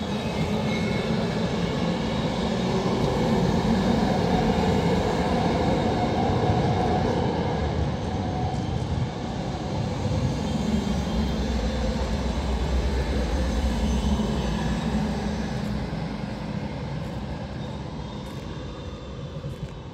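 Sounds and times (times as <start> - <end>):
tram wheels rumbling on rails: 0.0 - 19.9.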